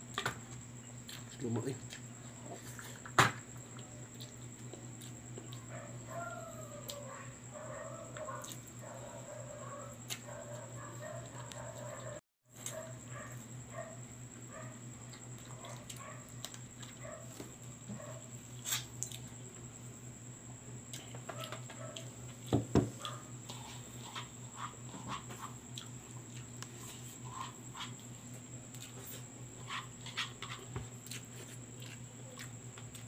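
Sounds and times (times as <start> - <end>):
steady low hum: 0.0 - 33.0
chewing and lip smacks: 31.0 - 33.0.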